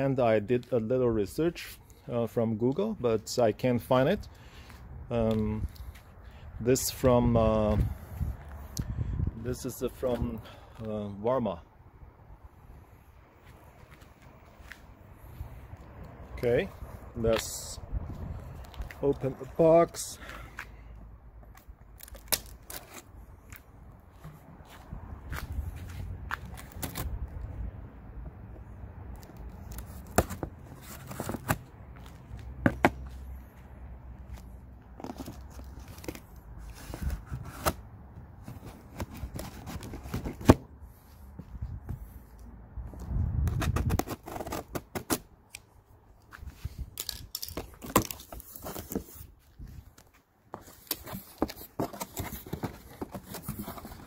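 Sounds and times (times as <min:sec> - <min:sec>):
tape and cardboard crackling: 0:21.4 - 0:24.5, 0:26.3 - 0:27.5, 0:29.1 - 0:33.2, 0:34.3 - 0:40.7, 0:42.9 - 0:54.0.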